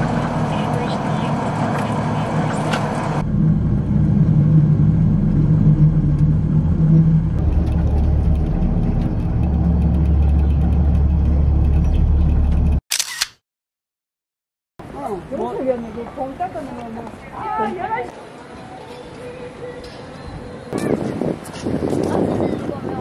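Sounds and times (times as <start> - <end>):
rail car rumble and hum: 0.0 - 12.8, 18.2 - 23.0.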